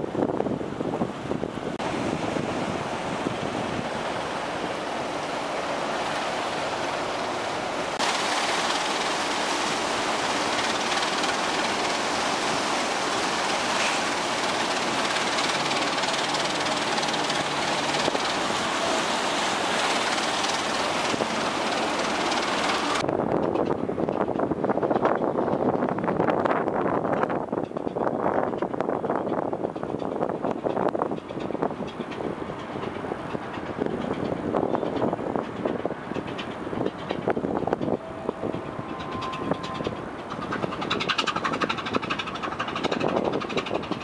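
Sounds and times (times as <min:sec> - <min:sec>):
propeller wash churning water: 0:00.0 - 0:23.1, 0:31.0 - 0:44.0
boat engine running: 0:00.0 - 0:44.0.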